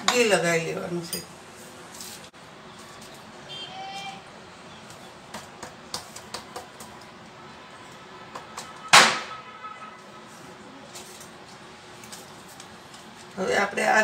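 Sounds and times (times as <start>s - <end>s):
loud sharp knock: 8.9s - 9.4s.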